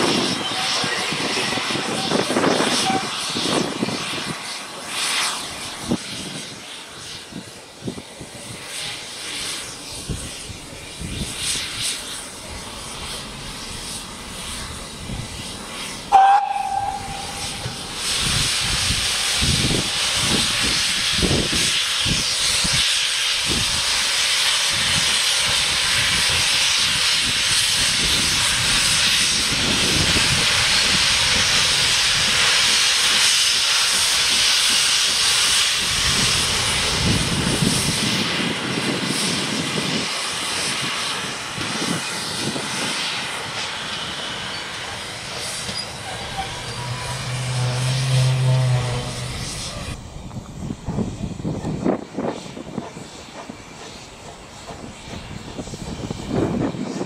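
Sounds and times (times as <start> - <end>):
steam locomotive whistle: 0.0 - 3.5, 16.1 - 18.3, 45.4 - 50.0
steam hissing: 0.0 - 57.0.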